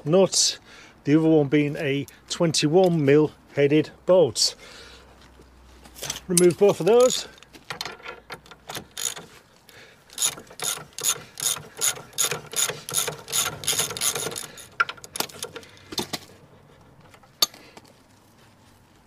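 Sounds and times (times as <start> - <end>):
socket ratchet clicking: 6.9 - 9.3, 10.1 - 15.9.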